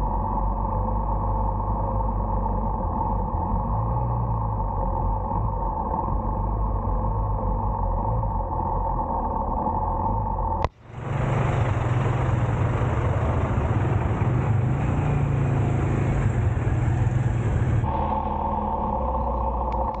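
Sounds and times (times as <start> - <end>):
wet road noise: 10.6 - 18.0
motorbike engine running: 10.7 - 18.0.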